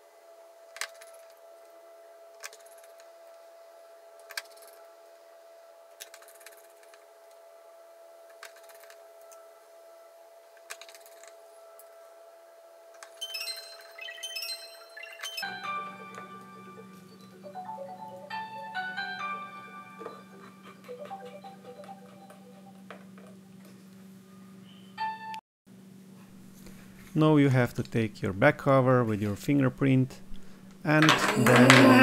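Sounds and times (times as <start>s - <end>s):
faint steady hum: 0.0s - 32.0s
light marimba-like music: 13.2s - 23.4s.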